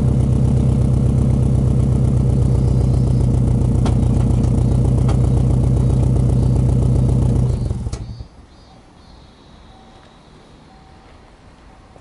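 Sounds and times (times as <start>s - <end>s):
car engine idling: 0.0s - 8.4s.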